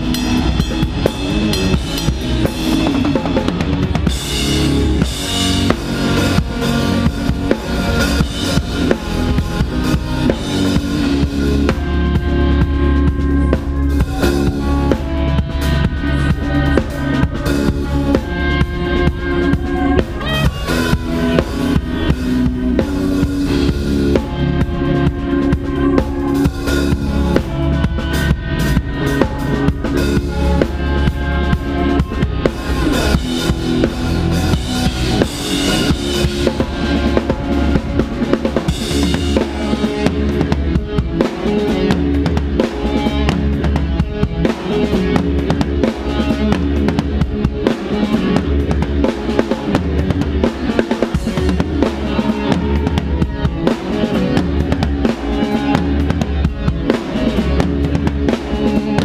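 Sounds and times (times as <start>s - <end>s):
loud drums and cymbals: 0.0s - 59.0s
rock band playing live: 0.0s - 59.0s.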